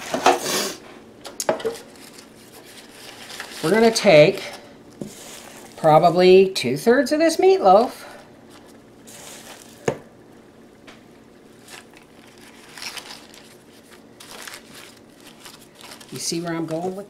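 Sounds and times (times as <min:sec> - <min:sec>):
paper and gloves crinkling: 0:01.8 - 0:06.0, 0:08.4 - 0:09.9, 0:11.5 - 0:17.0
ground meat squishing: 0:05.0 - 0:06.0, 0:08.5 - 0:10.0, 0:11.5 - 0:17.0.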